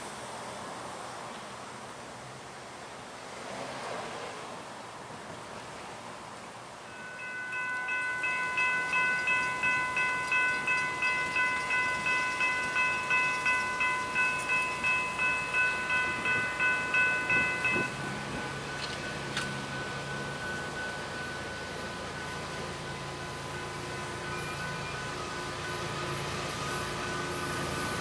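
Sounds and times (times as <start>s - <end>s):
low hum of train: 0.0s - 28.0s
railroad crossing bell ringing: 6.8s - 28.0s
faint ringing tone: 6.9s - 28.0s.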